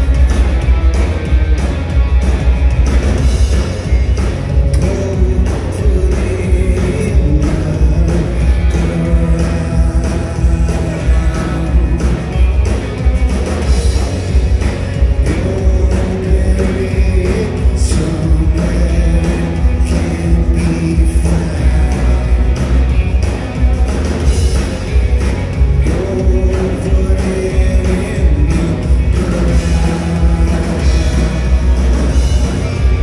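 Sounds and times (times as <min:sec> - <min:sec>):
drum beat: 0:00.0 - 0:33.0
live rock band: 0:00.0 - 0:33.0
man singing: 0:04.2 - 0:33.0.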